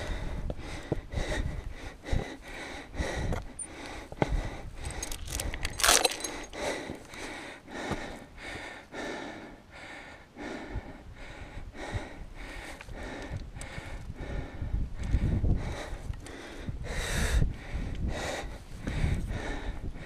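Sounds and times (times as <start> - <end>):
person panting heavily: 0.0 - 20.0
metallic chain jangle: 4.8 - 6.6.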